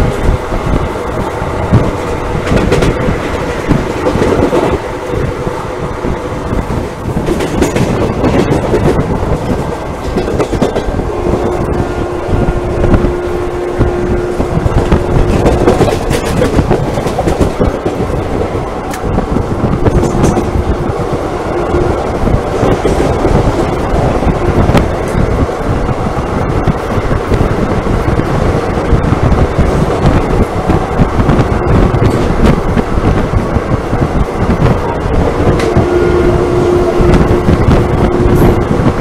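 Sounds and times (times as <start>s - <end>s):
train wheels clattering on rails: 0.0s - 13.1s, 13.8s - 39.0s
steady whine: 7.8s - 39.0s.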